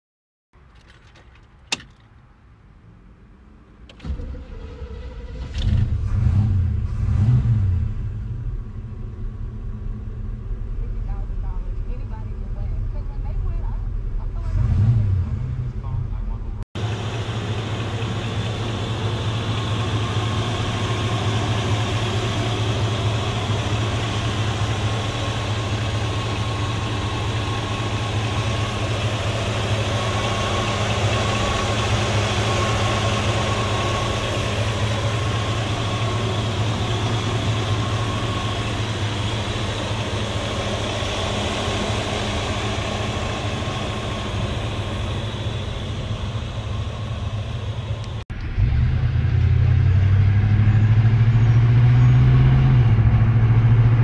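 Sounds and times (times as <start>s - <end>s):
car engine idling: 7.8s - 14.5s, 15.7s - 48.6s.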